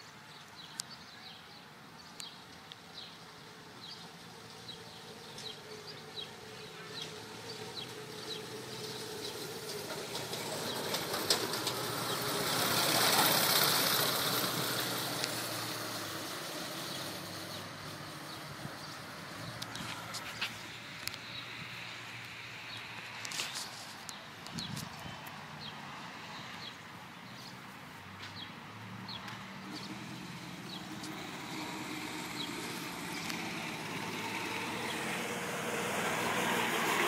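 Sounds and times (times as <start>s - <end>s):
birds chirping: 0.0s - 37.0s
go-kart engine passing: 3.0s - 22.8s, 28.8s - 37.0s.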